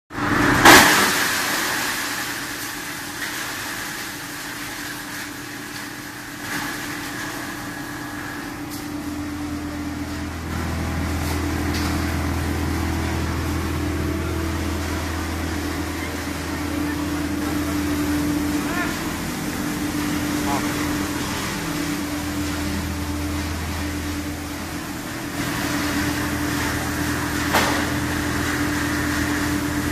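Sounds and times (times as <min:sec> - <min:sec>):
machine hum: 0:04.6 - 0:29.9.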